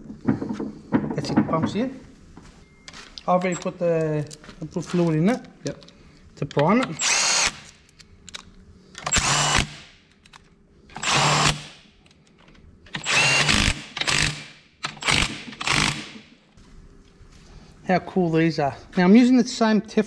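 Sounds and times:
cordless drill whirring: 7.0s - 7.6s, 9.0s - 9.8s, 11.0s - 11.6s, 12.9s - 14.4s, 15.0s - 16.2s.

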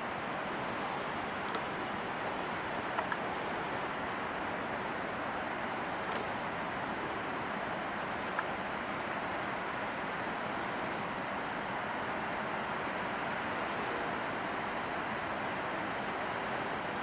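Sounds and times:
steady rushing noise: 0.0s - 17.0s
faint click: 3.0s - 3.2s.

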